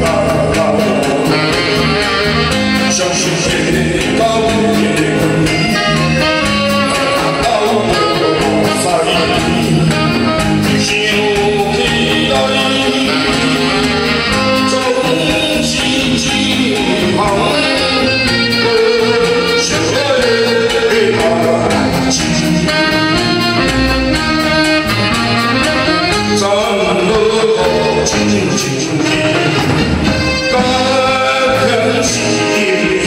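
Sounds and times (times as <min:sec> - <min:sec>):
man singing into microphone: 0:00.0 - 0:25.0, 0:25.6 - 0:33.0
drum kit beat: 0:00.0 - 0:33.0
live band playing: 0:00.0 - 0:33.0
saxophone: 0:00.0 - 0:33.0.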